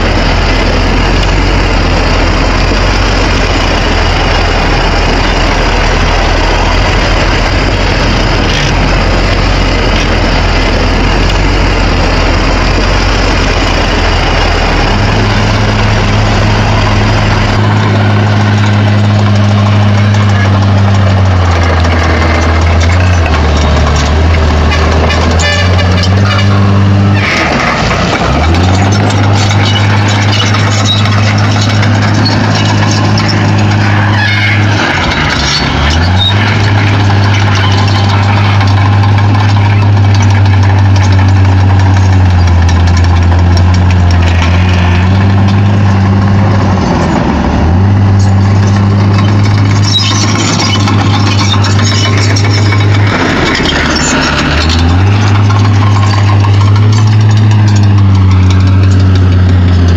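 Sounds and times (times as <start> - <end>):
diesel engine running: 0.0 - 59.9
metallic clatter: 0.1 - 59.9.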